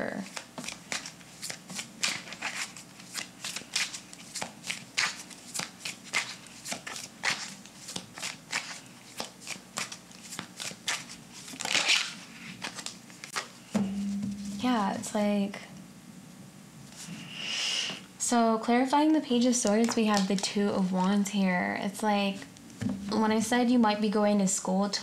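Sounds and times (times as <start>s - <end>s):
card rustle: 0.2s - 13.5s
cards being shuffled: 0.2s - 13.5s, 19.6s - 21.2s.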